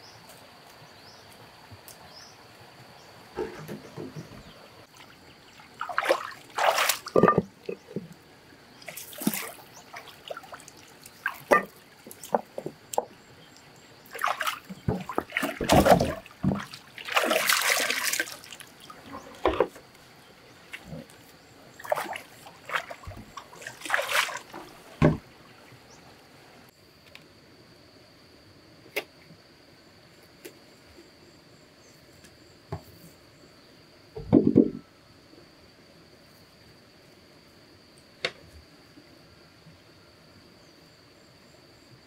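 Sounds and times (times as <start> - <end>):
water splashing and sloshing: 3.3 - 26.7
sharp knocks: 34.2 - 34.8.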